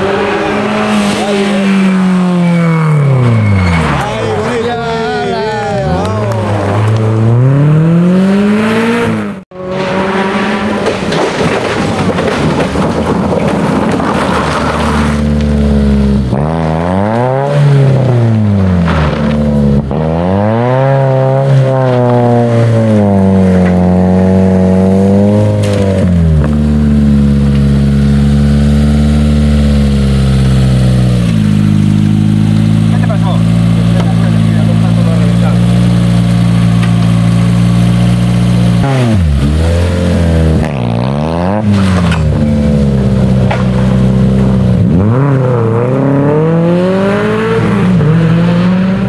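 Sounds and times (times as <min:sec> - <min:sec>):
rally car engines revving: 0:00.0 - 0:49.0.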